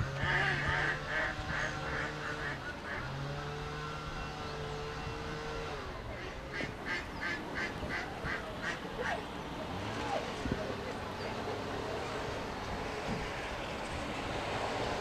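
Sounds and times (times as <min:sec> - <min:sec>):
waterfowl honking: 0:00.0 - 0:04.0, 0:06.2 - 0:09.3.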